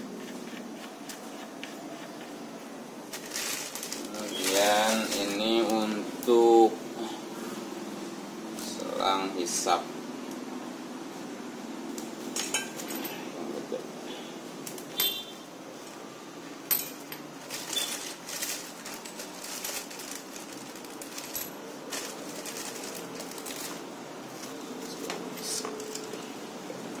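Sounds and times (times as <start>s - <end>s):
steady low hum: 0.0s - 17.6s
plastic bag rustling: 3.0s - 6.0s, 17.2s - 26.3s.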